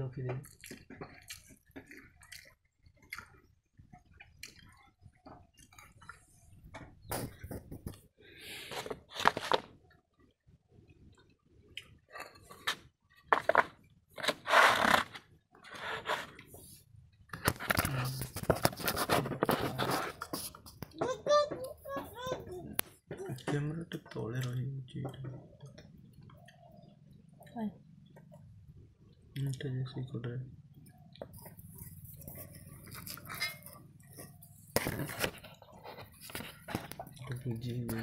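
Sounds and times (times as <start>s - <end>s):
chewing: 0.4s - 7.1s, 30.8s - 38.0s
clinks and scrapes of steel bowls: 31.9s - 34.5s.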